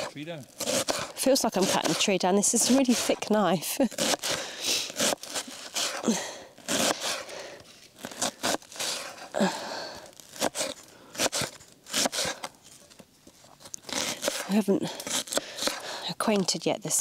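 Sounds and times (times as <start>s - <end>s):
knife chopping onion on board: 0.8s - 3.1s.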